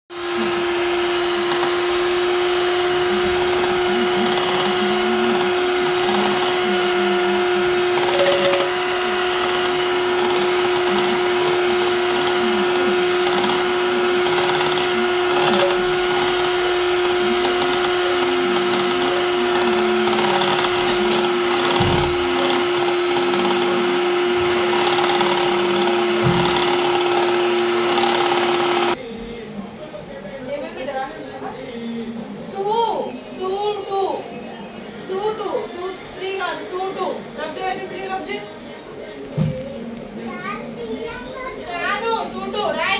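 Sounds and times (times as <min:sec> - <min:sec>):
electric hand mixer humming: 0:00.1 - 0:29.0.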